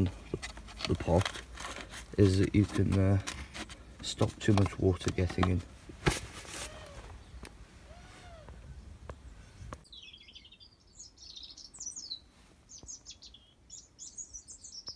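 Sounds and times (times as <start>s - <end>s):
background hiss: 5.6s - 14.9s
birds chirping and trilling: 6.7s - 14.9s.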